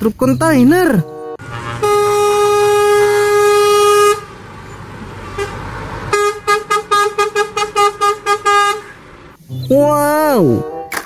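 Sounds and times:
engine and road noise: 0:00.0 - 0:09.7
short horn toots: 0:01.0 - 0:04.3
truck horn blast: 0:01.0 - 0:09.1.

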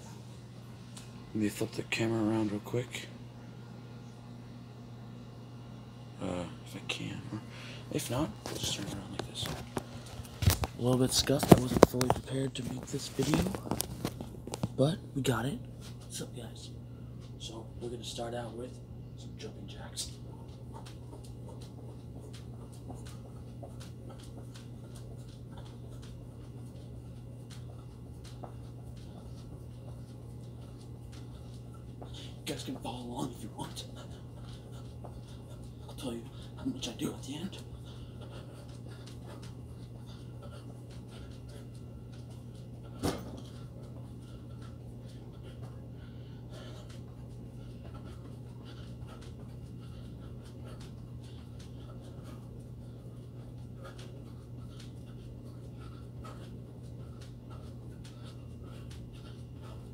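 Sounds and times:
steady low hum: 0:00.0 - 0:59.9
person panting hard: 0:07.4 - 0:07.9, 0:21.6 - 0:32.4, 0:33.7 - 0:36.8, 0:37.6 - 0:59.9
faint footfalls: 0:08.0 - 0:15.1, 0:20.0 - 0:59.9.

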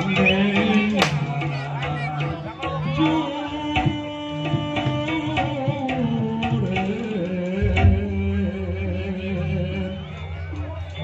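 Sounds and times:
hand-drum strokes: 0:03.0 - 0:09.3.

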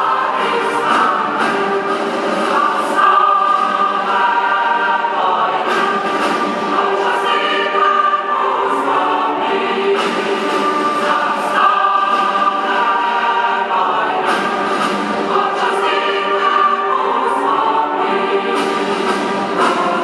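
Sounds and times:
mixed choir singing: 0:00.0 - 0:20.0.

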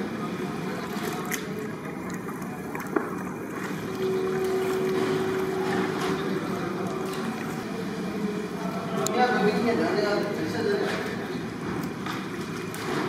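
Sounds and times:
steady low hum: 0:00.0 - 0:13.0
hands squelching wet chicken: 0:00.7 - 0:07.7.

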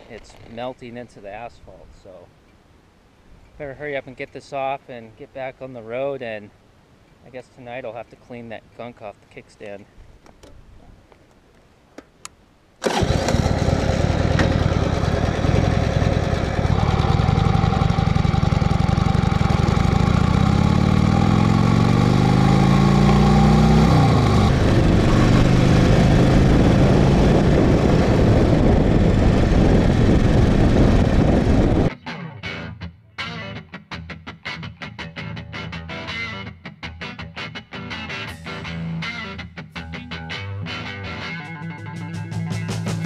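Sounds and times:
motorcycle engine revving: 0:12.8 - 0:31.9.

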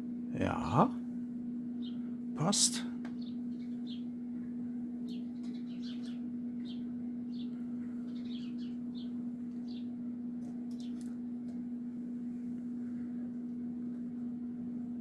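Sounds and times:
steady low hum: 0:00.0 - 0:15.0
small birds chirping: 0:01.7 - 0:10.0, 0:10.6 - 0:11.2.

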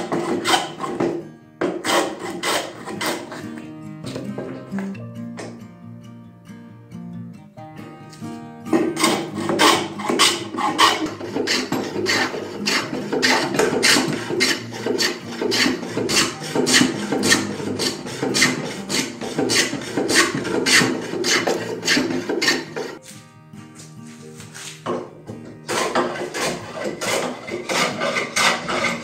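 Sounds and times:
hand plane shaving wood: 0:00.0 - 0:03.6, 0:08.7 - 0:23.0, 0:25.6 - 0:29.0.

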